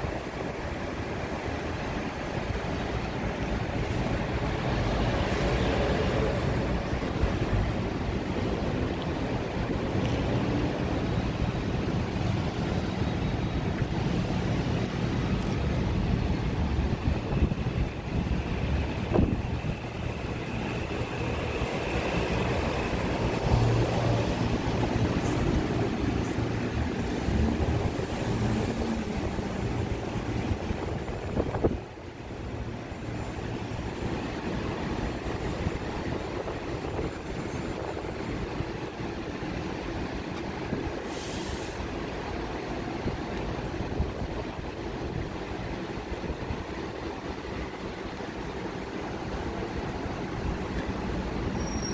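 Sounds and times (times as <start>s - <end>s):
distant city traffic rumble: 0.0s - 51.9s
wind buffeting microphone: 14.3s - 32.1s.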